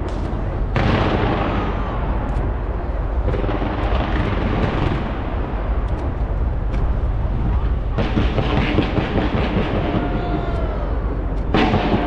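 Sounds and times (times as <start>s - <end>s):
fireworks bangs and crackling: 0.0s - 2.5s, 3.2s - 5.6s, 7.9s - 10.5s, 11.5s - 12.0s.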